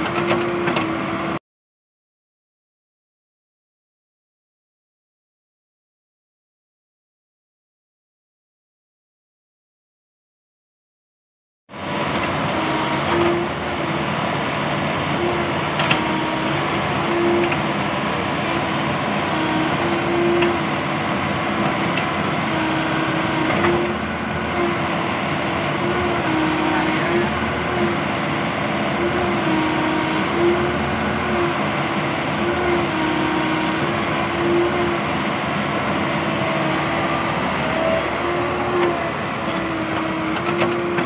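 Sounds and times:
excavator engine and hydraulics: 0:00.0 - 0:01.4, 0:11.7 - 0:41.0.

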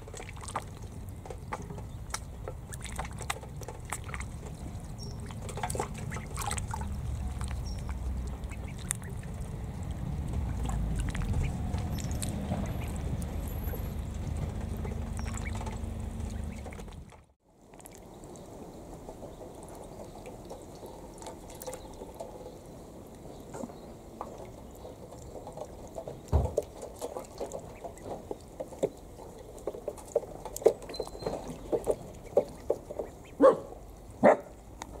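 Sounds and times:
ducklings splashing in water: 0:00.0 - 0:35.0
low rumble: 0:02.0 - 0:17.3
duckling calls: 0:05.1 - 0:17.0.

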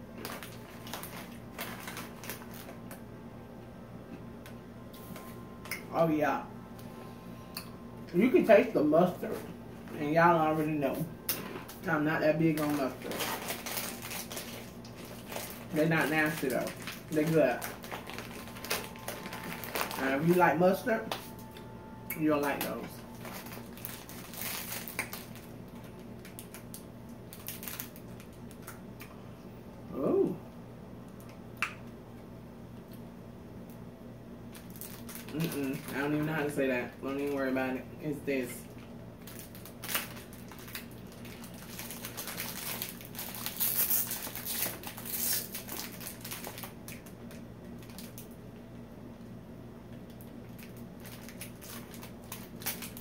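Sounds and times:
plastic wrappers crinkling: 0:00.0 - 0:03.0, 0:08.2 - 0:21.5, 0:22.2 - 0:28.8, 0:34.5 - 0:37.6, 0:38.4 - 0:48.3, 0:50.2 - 0:53.0.

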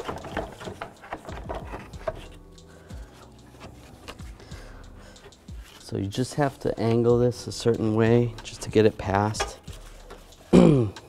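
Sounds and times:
plastic shroud knocking and clicking: 0:00.0 - 0:02.2.

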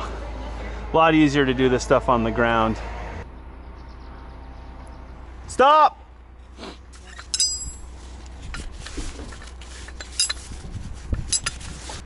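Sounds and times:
low steady rumble: 0:00.0 - 0:12.0
short metallic ring: 0:07.0 - 0:08.0
metal clinks and rattles: 0:07.0 - 0:10.6, 0:11.2 - 0:11.7.

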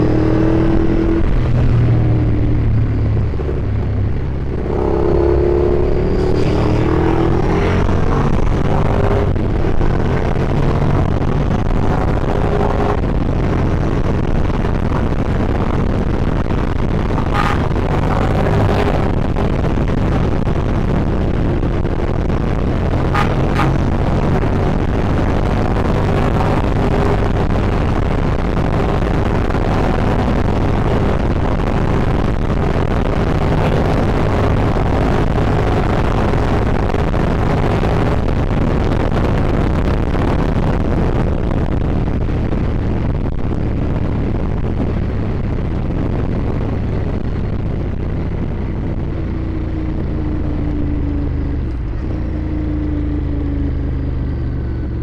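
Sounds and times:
motorcycle engine running: 0:00.0 - 0:55.0
wind rush over microphone: 0:00.0 - 0:55.0.

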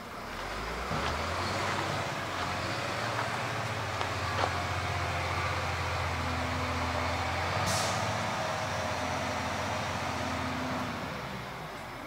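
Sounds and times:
heavy vehicle engine humming: 0:00.0 - 0:12.0
air brake hiss: 0:07.6 - 0:08.2.

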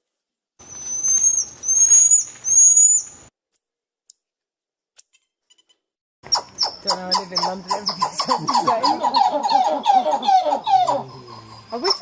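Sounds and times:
marmoset whistling calls: 0:00.6 - 0:03.2, 0:06.3 - 0:12.0
animal call: 0:06.3 - 0:12.0.

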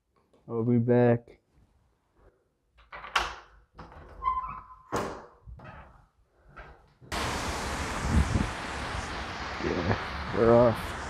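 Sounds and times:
metal door knob turning: 0:02.8 - 0:06.0
door opening and shutting: 0:02.8 - 0:06.8
wet street hiss: 0:07.1 - 0:11.0.

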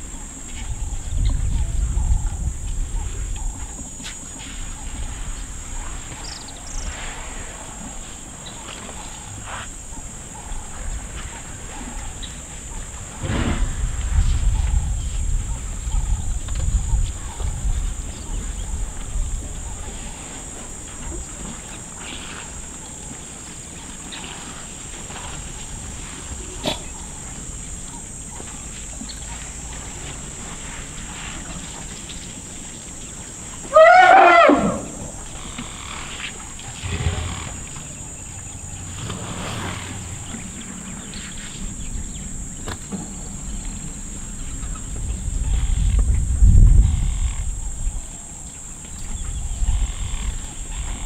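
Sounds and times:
high insect buzz: 0:33.6 - 0:41.8
low rumbling: 0:36.7 - 0:42.5.

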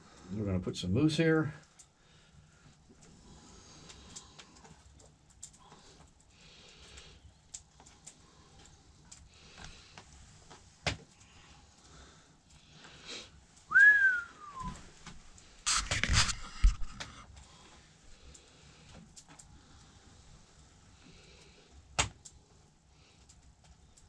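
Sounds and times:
scrapes and clicks of meat moving: 0:01.6 - 0:13.7, 0:14.6 - 0:24.0
rising and falling whistle: 0:13.7 - 0:14.8.

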